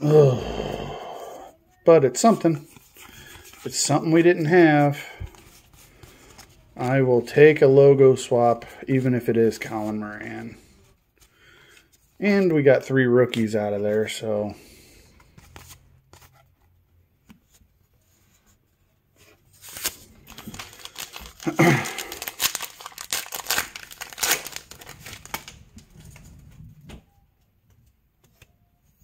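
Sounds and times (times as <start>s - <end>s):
wrapper tearing and crinkling: 19.6s - 26.2s.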